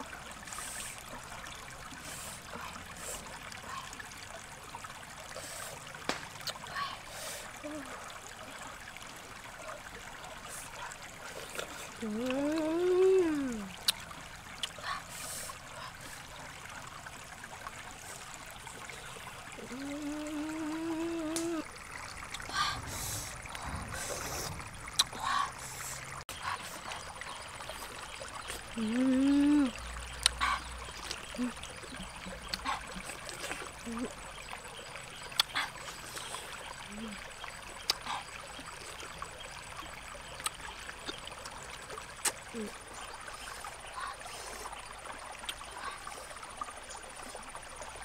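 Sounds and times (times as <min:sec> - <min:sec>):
stream trickling over rocks: 0:00.0 - 0:48.0
woman humming: 0:12.0 - 0:13.8, 0:19.6 - 0:21.7, 0:28.8 - 0:29.8, 0:31.3 - 0:32.1, 0:36.9 - 0:37.2.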